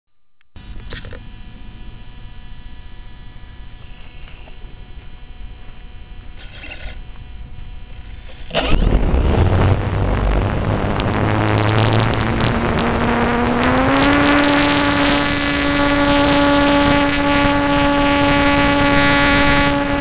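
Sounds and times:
steady electrical hum: 0.3s - 20.0s
model plane motor and propeller: 6.3s - 7.2s
low rumble: 7.2s - 20.0s.

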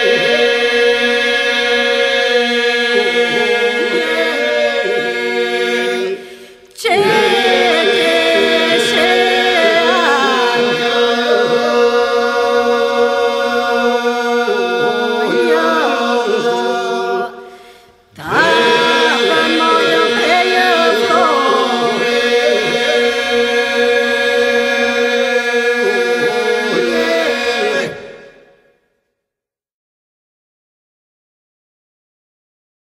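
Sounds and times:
held vocal drone: 0.0s - 28.5s
polyphonic a cappella folk singing: 0.0s - 28.6s
woman's lead voice singing: 18.2s - 22.0s.

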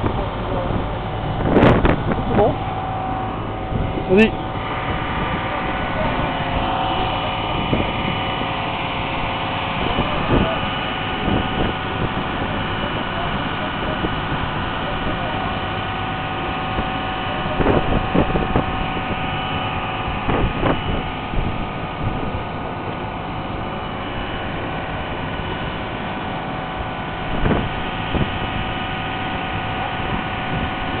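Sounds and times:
bow wave rushing: 0.0s - 15.5s
boat engine humming: 0.0s - 31.0s.

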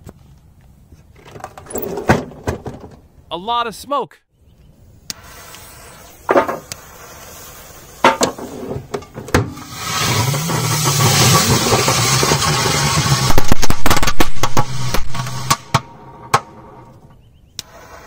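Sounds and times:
fuses hissing: 5.0s - 8.9s, 17.5s - 18.0s
firecracker bangs: 9.5s - 16.8s.

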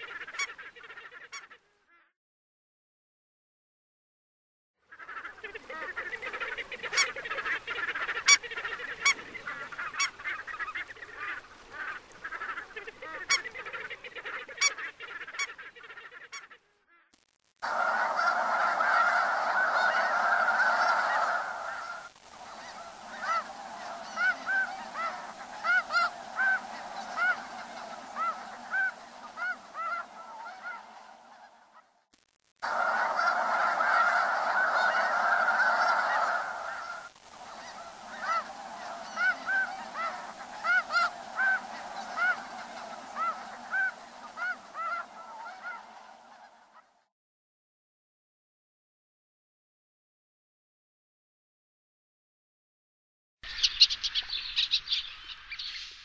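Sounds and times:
chorus of high goose honks: 0.0s - 2.0s, 4.9s - 16.6s, 17.6s - 31.9s, 32.6s - 46.9s
geese honking and cackling: 0.0s - 2.0s, 4.9s - 16.6s, 17.6s - 31.9s, 32.6s - 46.9s.

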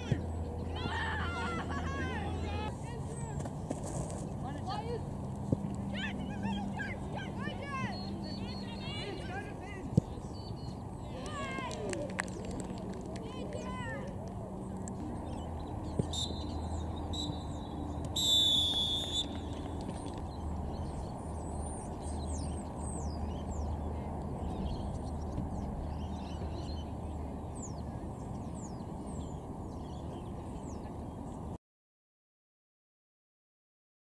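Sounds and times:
small birds chirping: 5.9s - 11.6s, 14.6s - 31.6s
referee's whistle blasts: 18.2s - 19.3s.

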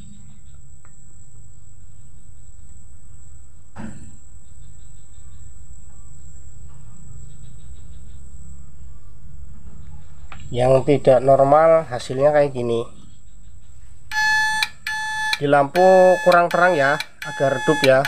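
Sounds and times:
faint high whine: 14.1s - 18.0s
sharp electrical click: 14.1s - 18.0s.

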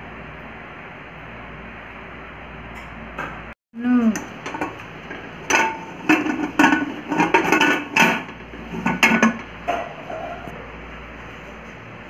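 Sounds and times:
metal lid clanking on pot: 4.2s - 10.5s.

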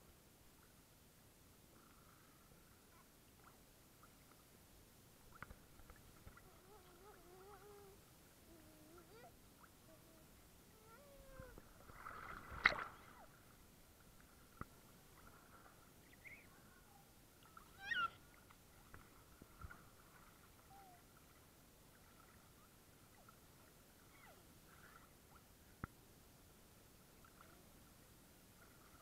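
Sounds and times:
faint steady thin tone: 0.0s - 29.0s
baby squealing: 17.8s - 18.2s.

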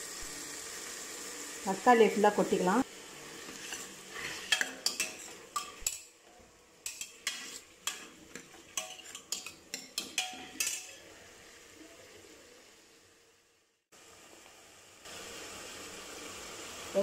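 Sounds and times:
ladle scraping metal pot: 3.2s - 6.1s, 6.8s - 11.1s.

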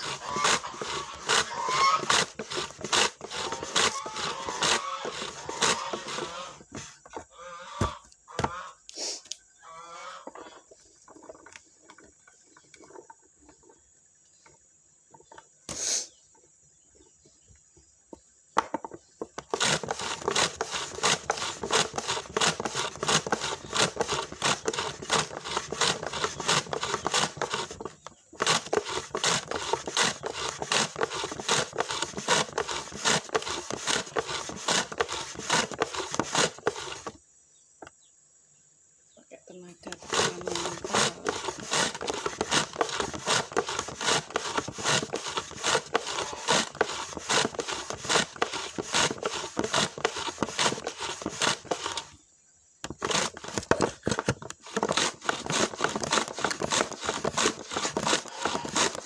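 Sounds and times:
vegetable slicer scraping strokes: 0.0s - 9.2s, 19.4s - 37.2s, 39.9s - 52.2s, 52.8s - 59.0s.

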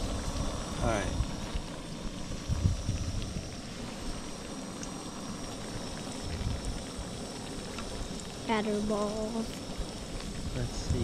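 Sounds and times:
low rumble: 0.0s - 7.4s
food frying in hot oil: 0.0s - 11.0s.

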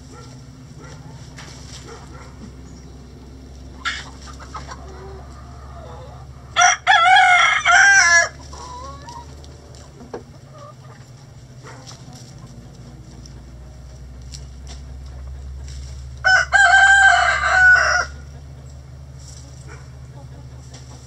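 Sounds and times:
hens clucking softly: 0.0s - 6.7s, 8.0s - 21.0s
rooster crowing: 4.8s - 9.1s, 16.2s - 18.3s.

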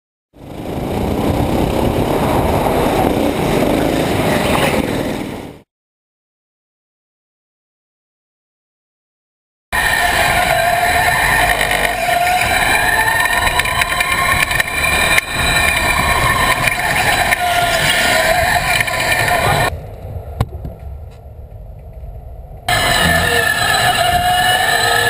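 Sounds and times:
go-kart engine: 0.4s - 5.6s, 9.8s - 20.3s, 22.7s - 25.0s.

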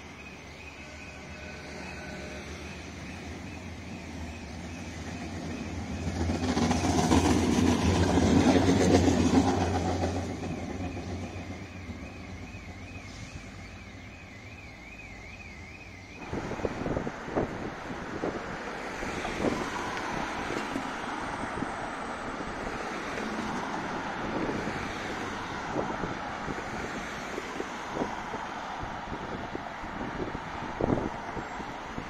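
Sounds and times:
tram passing: 0.0s - 32.0s
wind noise on microphone: 16.2s - 22.9s, 23.8s - 32.0s.

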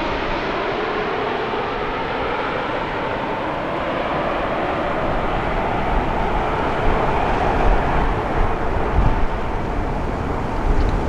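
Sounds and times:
jet engines roaring: 0.0s - 11.0s.

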